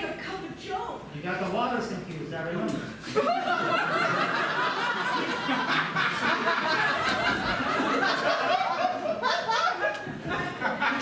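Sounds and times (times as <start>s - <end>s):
audience laughing: 3.0s - 11.0s.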